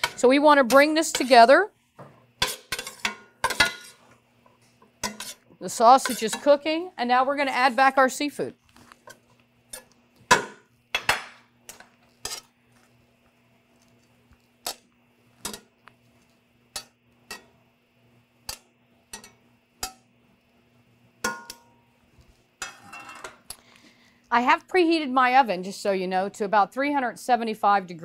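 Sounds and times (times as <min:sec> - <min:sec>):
metal tongs clinking on pan: 0:18.5 - 0:20.0.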